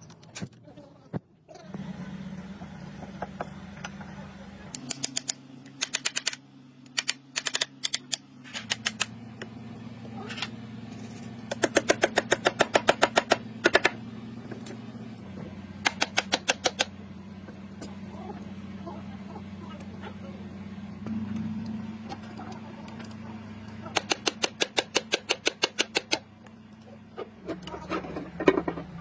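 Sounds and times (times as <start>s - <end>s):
low hum: 1.4s - 24.2s.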